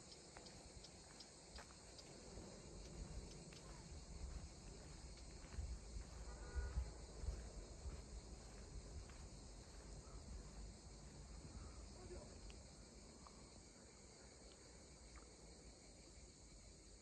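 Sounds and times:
crickets and insects chirring: 0.0s - 17.0s
wind rumble on microphone: 2.6s - 10.7s.

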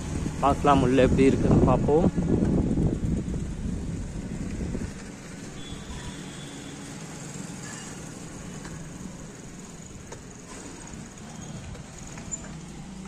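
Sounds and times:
wind rumbling on microphone: 0.0s - 6.3s
faint street background: 0.0s - 13.0s.

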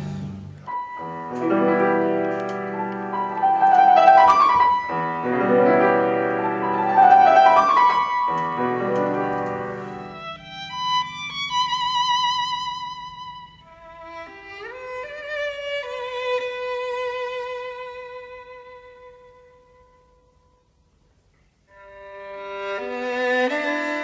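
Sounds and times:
piano playing chords: 0.0s - 13.9s.

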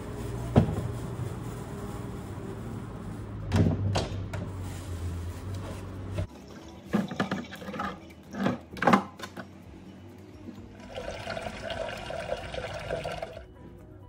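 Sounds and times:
plastic bag rustling: 0.0s - 3.5s, 4.5s - 6.4s.

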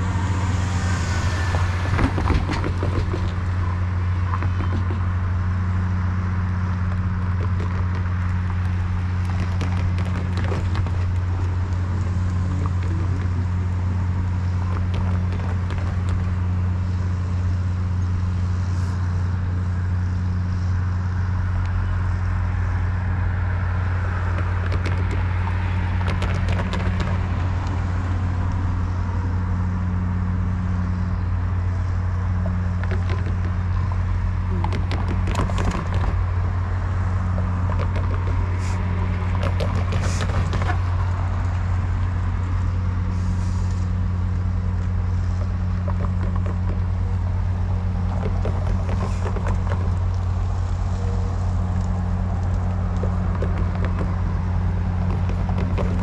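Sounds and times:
low engine drone: 0.0s - 56.0s
vehicles passing over crossing: 0.0s - 56.0s.

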